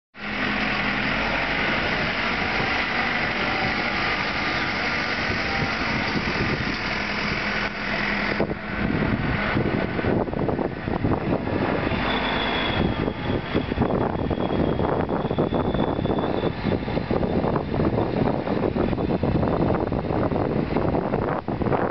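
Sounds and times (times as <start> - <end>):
diesel engine running: 0.2 - 21.9
thin high whine: 11.8 - 16.8.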